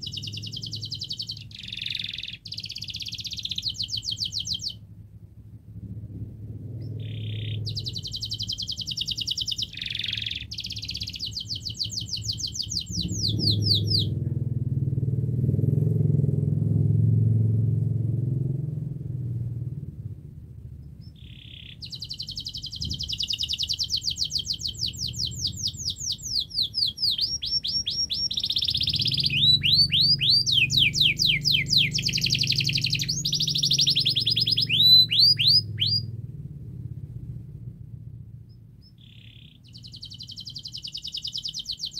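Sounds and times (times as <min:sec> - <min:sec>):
canary singing trills: 0:00.0 - 0:04.8, 0:06.7 - 0:14.3, 0:20.7 - 0:36.2, 0:38.4 - 0:41.9
low steady hum: 0:00.0 - 0:41.9.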